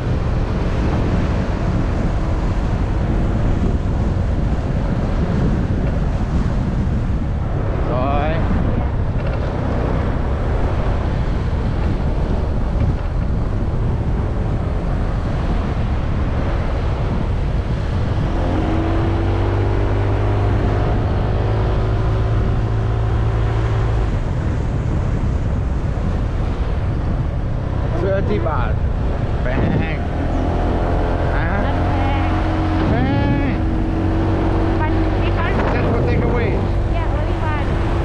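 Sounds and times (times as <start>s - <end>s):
wind rush on microphone: 0.0s - 38.0s
motorbike engine running: 29.4s - 38.0s.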